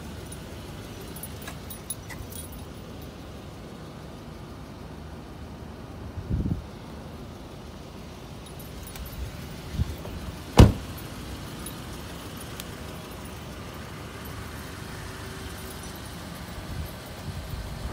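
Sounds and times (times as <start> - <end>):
car door shutting: 10.0 - 11.1.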